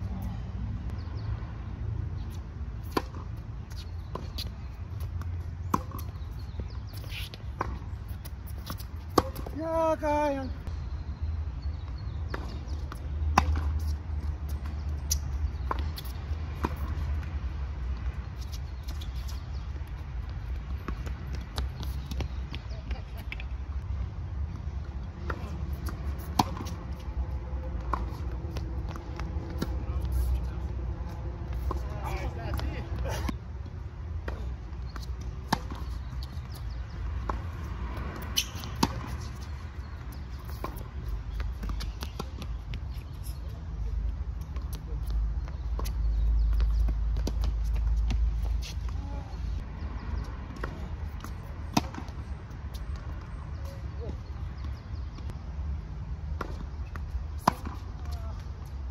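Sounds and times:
racket hitting tennis ball: 2.8s - 6.2s, 7.0s - 9.6s, 13.3s - 13.9s, 25.2s - 30.4s, 34.2s - 42.6s, 50.5s - 53.2s, 56.4s - 58.2s
shoe squeak: 3.6s - 5.2s, 5.8s - 9.5s, 18.3s - 19.6s, 38.2s - 43.5s.

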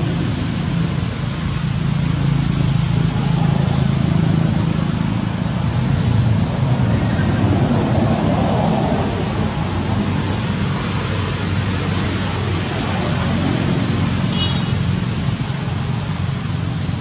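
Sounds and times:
constant high hiss: 0.0s - 17.0s.

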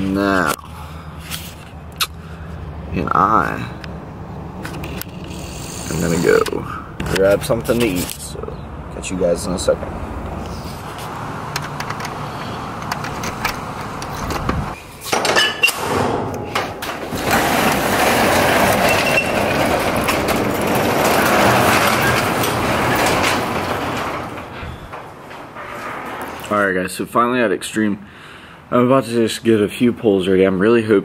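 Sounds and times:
metal roll-up door rattling: 4.7s - 6.4s, 10.7s - 26.8s
sharp clicks and knocks: 10.9s - 26.6s.

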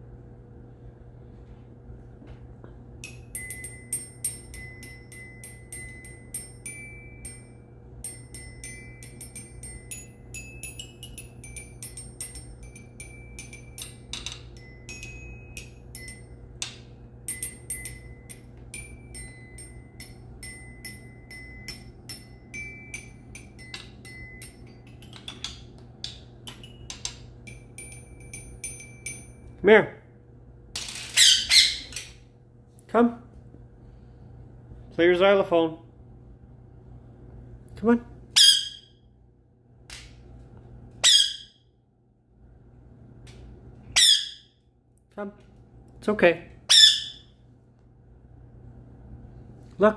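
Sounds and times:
parakeet squawking: 31.2s - 32.0s, 38.4s - 38.9s, 41.0s - 41.6s, 44.0s - 44.5s, 46.7s - 47.3s.

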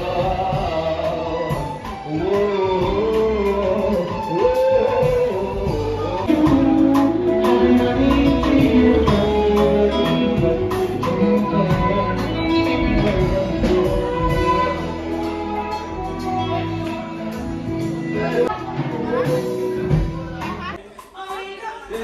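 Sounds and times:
guitar: 0.0s - 20.8s
drum kit beat: 0.0s - 22.0s
person singing: 0.0s - 22.0s.

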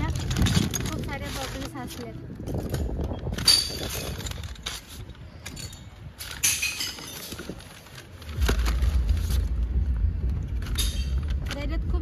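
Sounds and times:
glass bottles clinking and crashing: 2.6s - 7.6s, 10.6s - 11.2s
steady low rumble: 7.4s - 12.0s.

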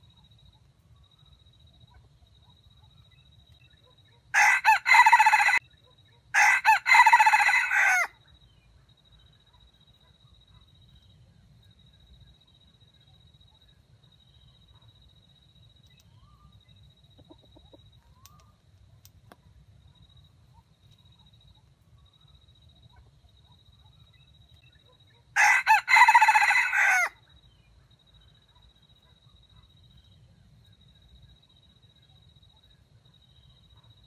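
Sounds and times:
rooster crowing: 4.3s - 5.6s, 6.3s - 8.2s, 25.4s - 27.2s.

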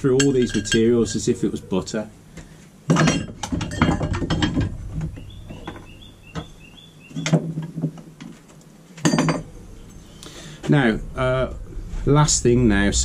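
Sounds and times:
hard objects clattering: 2.9s - 9.5s.

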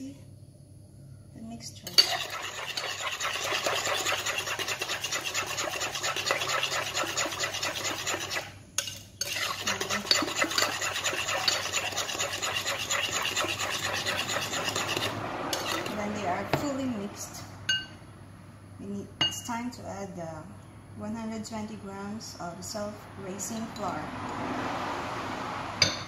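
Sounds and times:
spoon beating batter in glass bowl: 1.8s - 16.7s.

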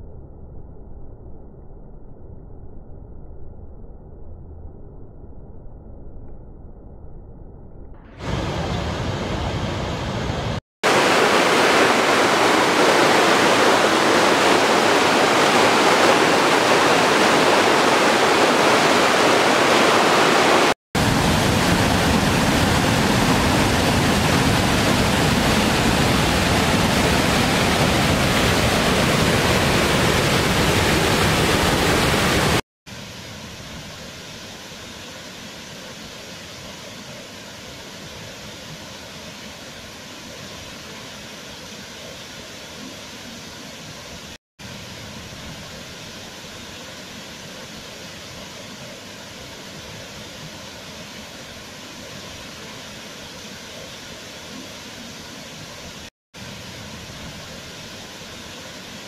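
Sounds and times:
waterfalls rushing: 8.2s - 32.6s.

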